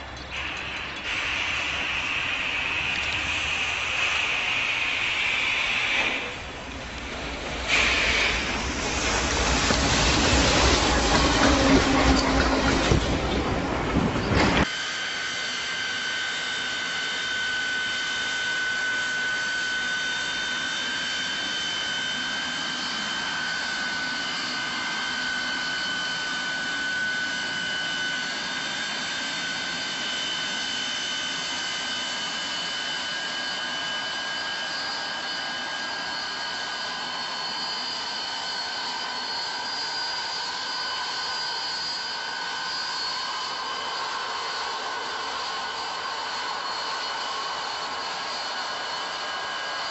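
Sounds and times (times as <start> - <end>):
high machine whine: 0.0 - 49.9
snow blower rushing noise: 0.4 - 14.8.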